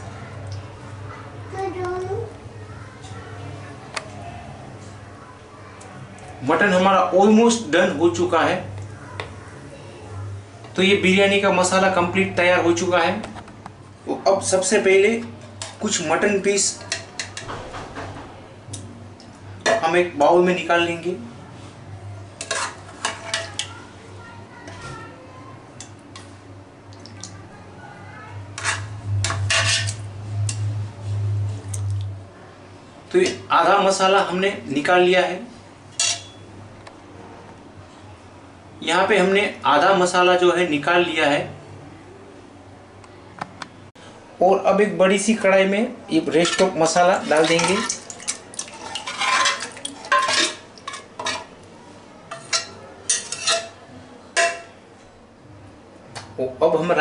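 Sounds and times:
metal spoon scraping pot: 28.6s - 30.6s, 46.4s - 51.6s, 52.3s - 53.8s.

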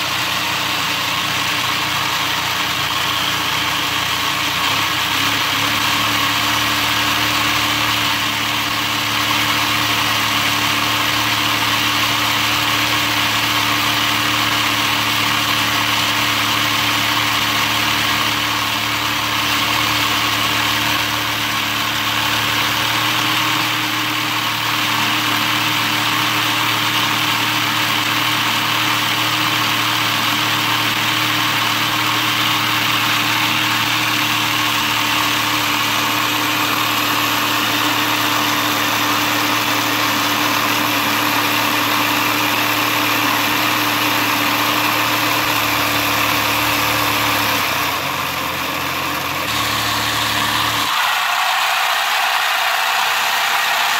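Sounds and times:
electric motor whirring: 49.3s - 53.9s.

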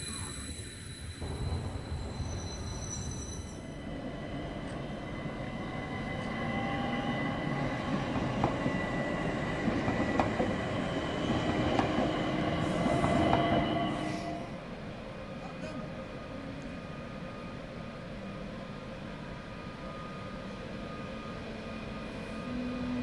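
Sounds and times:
train wheels rumbling on rails: 0.0s - 15.0s
electric train whine: 0.0s - 23.0s.

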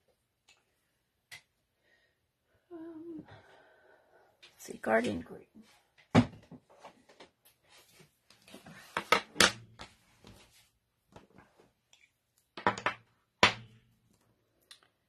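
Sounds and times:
plastic items knocking on a table: 12.6s - 13.8s.

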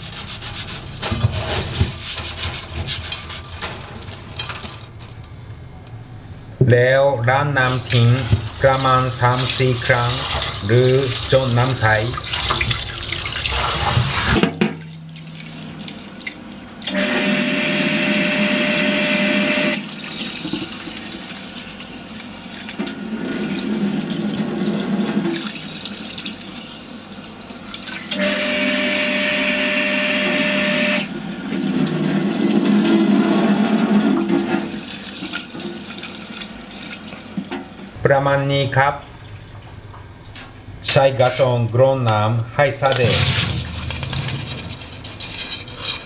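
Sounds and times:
tap water running into metal bowl: 0.0s - 5.3s, 7.7s - 37.7s.

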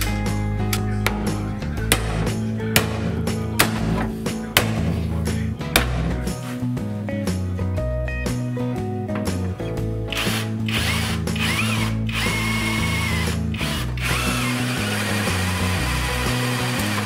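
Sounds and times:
background music: 0.0s - 17.0s
cordless drill whining: 10.1s - 17.0s.

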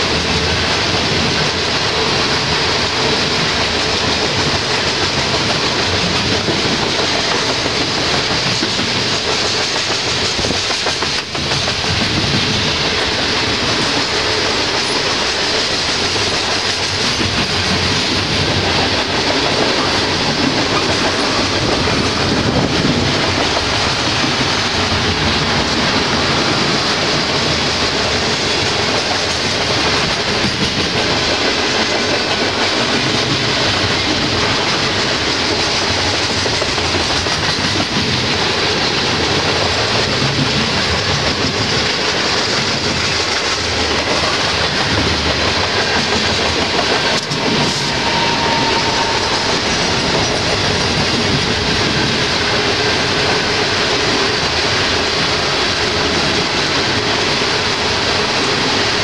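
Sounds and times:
freight train rumbling past: 0.0s - 59.0s
wheels clacking on rail joints: 0.0s - 59.0s.

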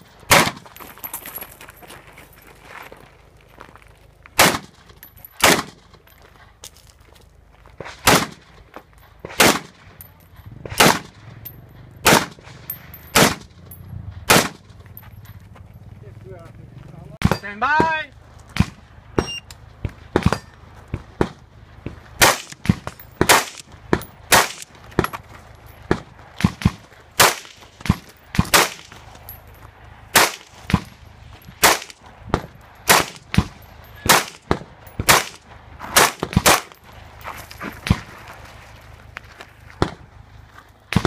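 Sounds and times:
rifle single shots: 0.3s - 0.6s, 4.4s - 4.8s, 5.4s - 5.9s, 8.0s - 8.5s, 9.3s - 9.8s, 10.7s - 11.2s, 12.0s - 12.5s, 13.2s - 13.5s, 14.3s - 14.7s, 22.2s - 23.6s, 24.3s - 24.6s, 30.2s - 30.5s, 31.6s - 32.0s, 34.1s - 35.4s.

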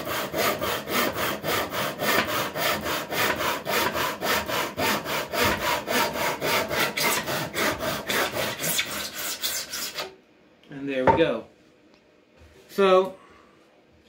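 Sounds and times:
hand saw cutting wood: 0.0s - 10.1s.

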